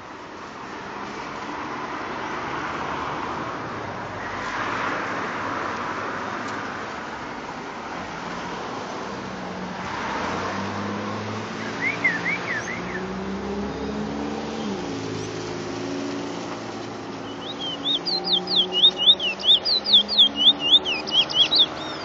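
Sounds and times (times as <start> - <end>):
vehicles passing by: 0.0 - 22.0
short high chirps: 17.2 - 22.0.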